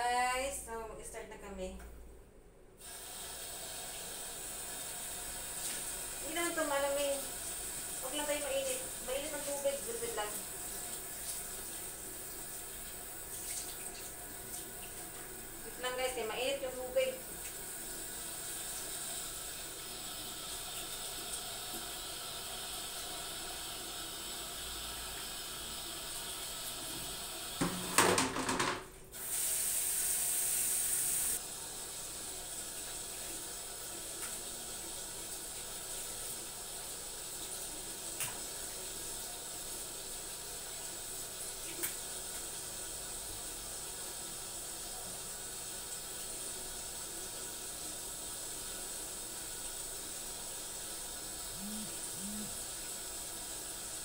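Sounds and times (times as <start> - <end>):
tap water running into sink: 2.8 - 15.8, 17.1 - 42.8.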